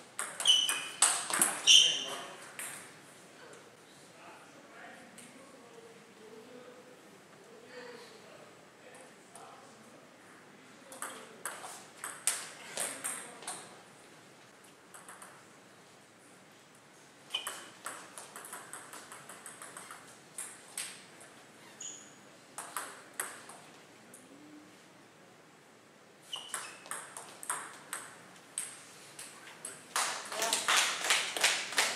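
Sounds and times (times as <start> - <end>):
table tennis ball bouncing: 0.2 - 1.8, 2.5 - 2.9, 10.9 - 13.7, 14.9 - 15.4, 17.3 - 21.0, 22.6 - 23.7, 26.4 - 28.8
short high squeaks: 0.3 - 2.3, 17.3 - 17.8, 21.6 - 22.2, 26.2 - 26.9.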